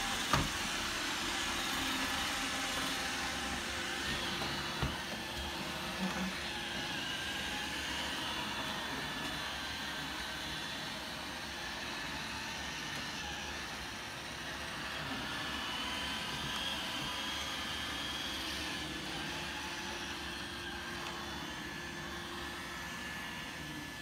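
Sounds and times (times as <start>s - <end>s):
robot vacuum whirring: 0.0s - 24.0s.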